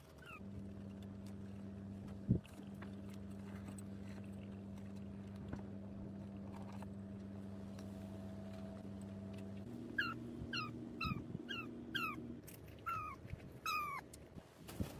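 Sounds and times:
steady low hum: 0.0 - 14.9
animal squeaking: 0.1 - 0.4, 9.9 - 12.2, 12.8 - 14.1.

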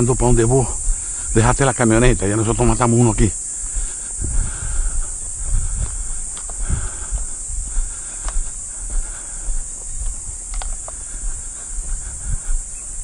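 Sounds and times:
high-pitched insect chorus: 0.0 - 13.0
faint clicks: 6.3 - 6.6, 10.5 - 11.1.

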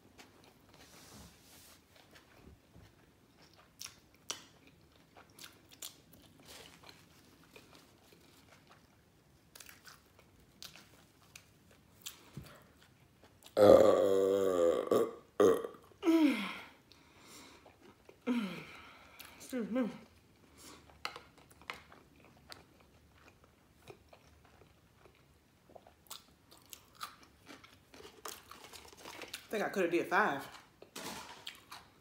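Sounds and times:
person chewing: 2.0 - 15.6, 16.8 - 18.2, 20.0 - 29.5
person burping: 13.6 - 16.7.

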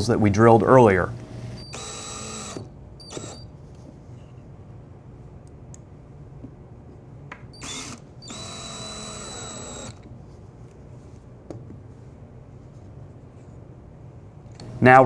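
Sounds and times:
cordless drill whining: 1.5 - 3.5, 7.6 - 10.1.

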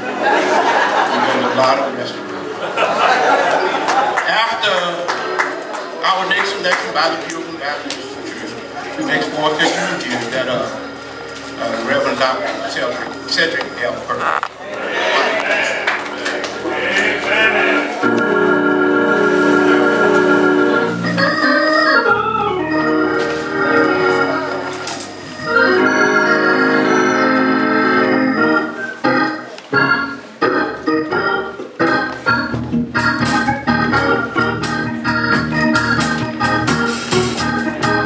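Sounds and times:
church organ chords: 9.2 - 14.4, 16.0 - 38.0
drum and cymbal hits: 35.7 - 38.0.

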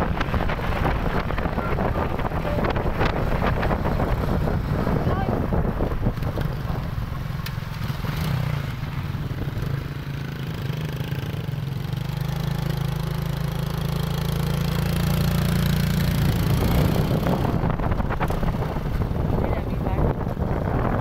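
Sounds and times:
wind buffeting microphone: 0.0 - 10.0, 14.6 - 21.0
motorcycle engine running: 0.0 - 21.0.

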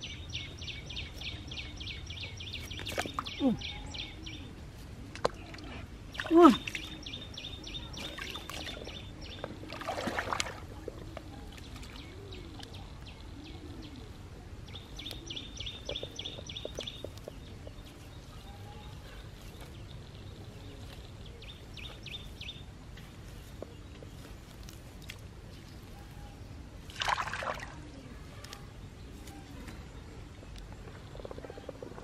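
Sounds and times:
stick poking wet soil: 2.5 - 3.4, 23.0 - 25.3
boot sloshing through muddy water: 9.6 - 10.8, 26.9 - 27.8.

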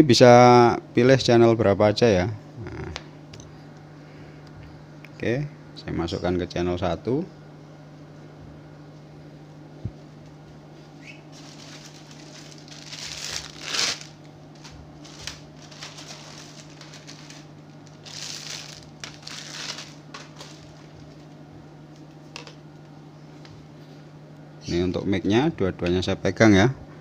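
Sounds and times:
steady low hum: 0.0 - 27.0
rustling and crinkling: 10.1 - 23.6.

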